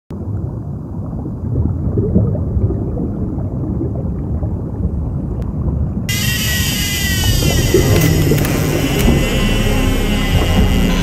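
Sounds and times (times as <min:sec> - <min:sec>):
boat rumbling across water: 0:04.5 - 0:11.0.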